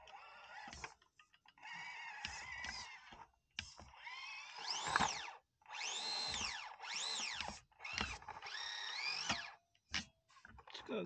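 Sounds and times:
small electric motor whining: 0.0s - 10.9s.

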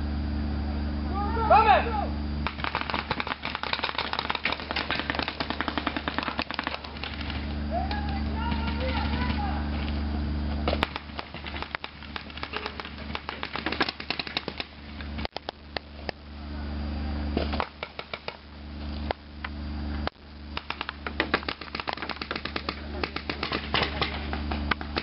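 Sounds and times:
paintball markers firing: 2.4s - 9.4s, 10.7s - 15.6s, 17.5s - 18.4s, 20.6s - 25.0s.

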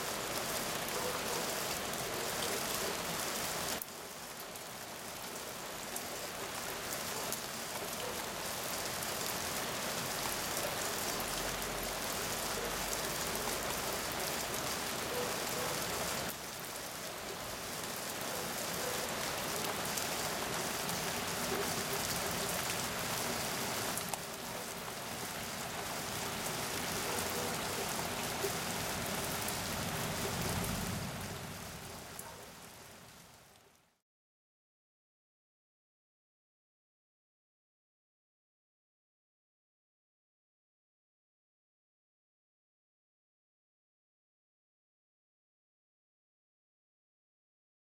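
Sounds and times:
heavy rain hissing: 0.0s - 33.6s.

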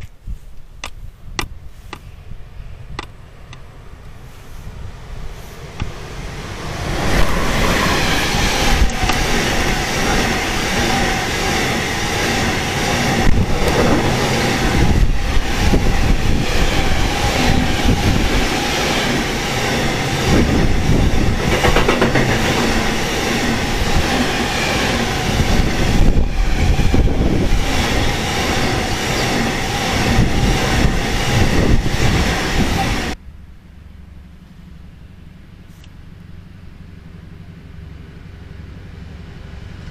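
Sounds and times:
freight train rumbling past: 2.1s - 39.9s
wheels clattering over rail joints: 7.0s - 33.2s.

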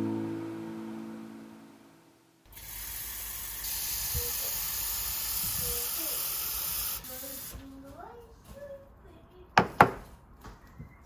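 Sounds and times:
guitar music: 0.0s - 2.1s
steady hiss: 2.5s - 7.7s.

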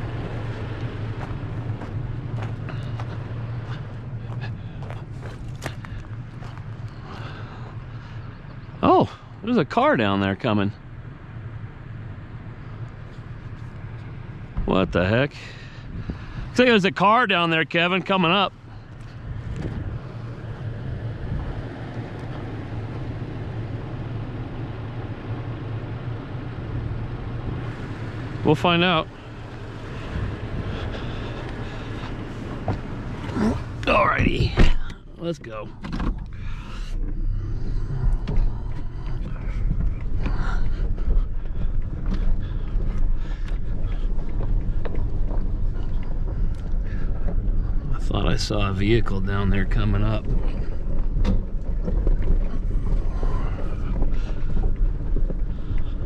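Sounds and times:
truck engine idling: 0.0s - 56.0s
vehicle body clicks and knocks: 17.9s - 20.8s, 29.6s - 48.0s, 49.7s - 56.0s.

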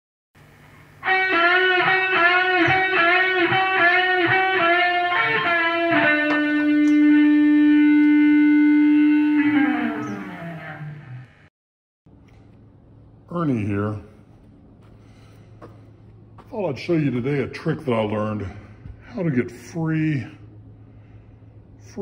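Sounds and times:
electric guitar riff: 0.8s - 11.5s.

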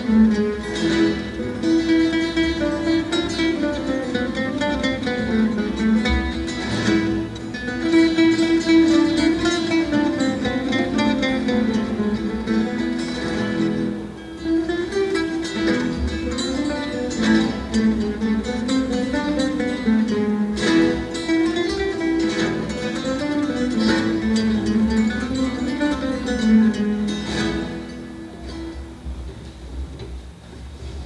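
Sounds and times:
acoustic guitars playing: 0.0s - 31.0s.

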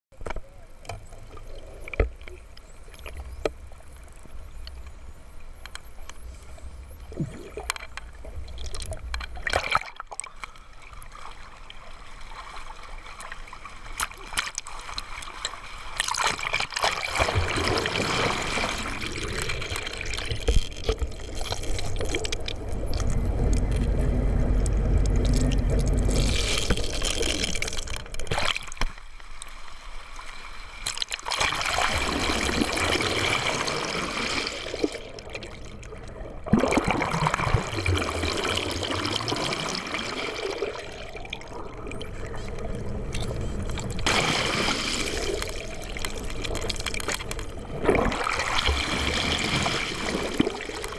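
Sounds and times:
seawater rushing and gurgling: 6.3s - 50.9s
low rumble: 18.7s - 28.3s.

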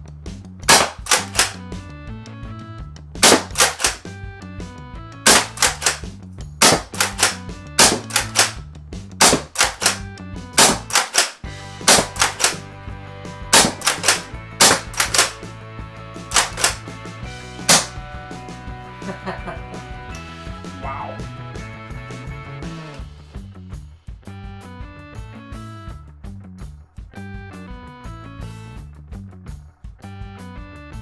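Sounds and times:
background music: 0.0s - 26.5s
foam dart blaster firing: 0.7s - 1.6s, 3.2s - 4.0s, 5.3s - 6.0s, 6.6s - 8.6s, 9.2s - 10.0s, 10.6s - 12.6s, 13.6s - 15.4s, 16.3s - 16.8s, 17.7s - 17.9s.

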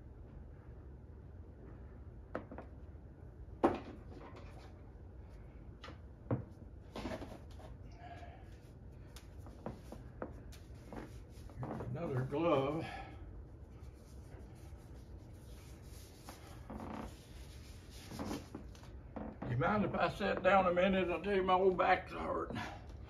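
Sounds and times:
rustling: 8.5s - 13.0s, 13.7s - 19.3s.

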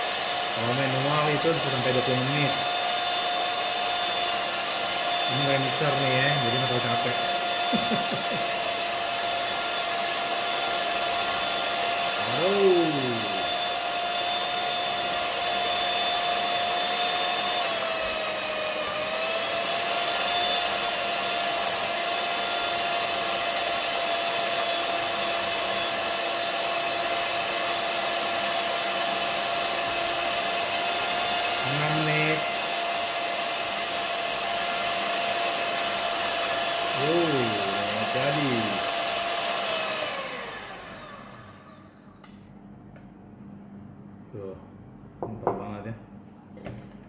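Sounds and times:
electric hand mixer whining: 0.0s - 42.3s.

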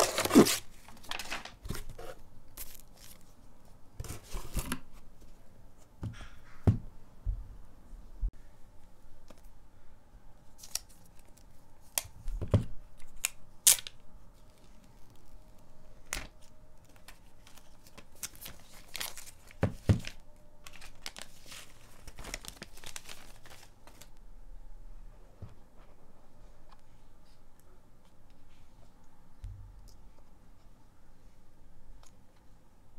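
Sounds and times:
stiff plastic crinkling: 13.1s - 24.1s.

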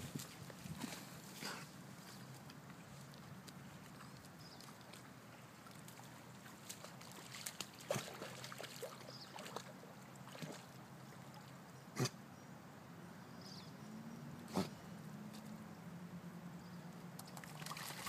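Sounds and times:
pond water sloshing: 0.0s - 11.7s, 17.0s - 18.0s
sharp splashes or knocks: 17.3s - 18.0s.

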